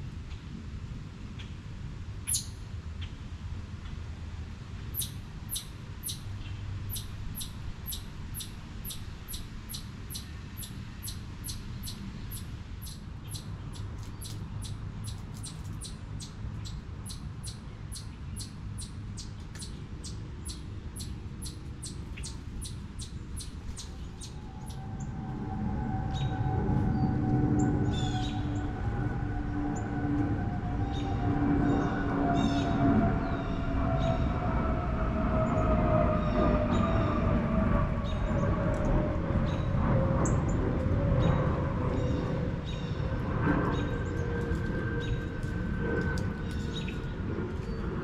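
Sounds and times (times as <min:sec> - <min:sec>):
chipmunk chip calls: 0:02.3 - 0:02.6, 0:04.9 - 0:06.3, 0:06.9 - 0:24.8.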